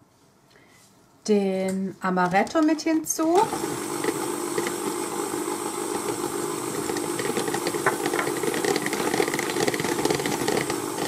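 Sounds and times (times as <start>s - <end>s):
electric hand mixer whisking: 3.2s - 11.0s.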